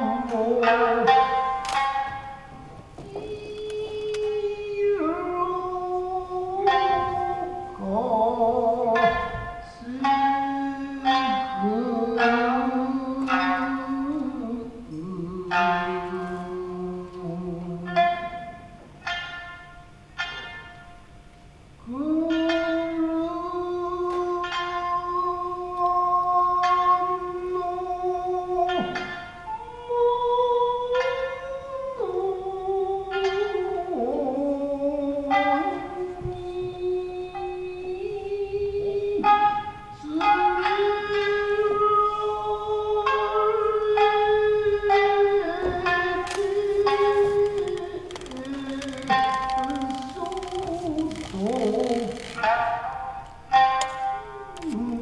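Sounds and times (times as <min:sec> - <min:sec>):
person chanting long sung notes: 0:00.0 - 0:19.4, 0:21.8 - 0:55.0
shamisen plucked notes: 0:00.0 - 0:55.0
chanter singing long notes: 0:29.6 - 0:55.0.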